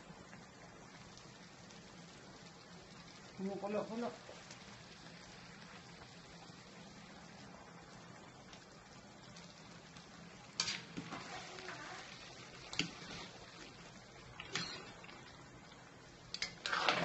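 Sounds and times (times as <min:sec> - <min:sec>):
sauce simmering in a pan: 0:00.0 - 0:17.0
spatula scraping a pan: 0:10.6 - 0:13.4, 0:16.4 - 0:17.0.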